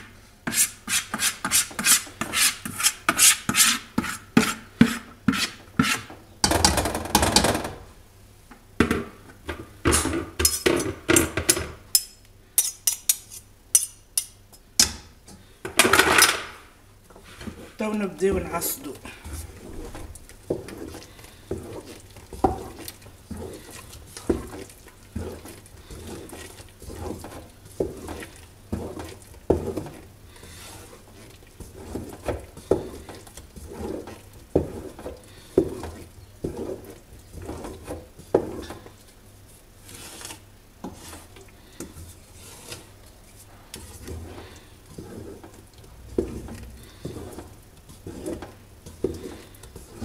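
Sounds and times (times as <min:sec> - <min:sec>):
wooden spoon scraping a metal pot: 0:00.0 - 0:06.3, 0:17.2 - 0:50.0.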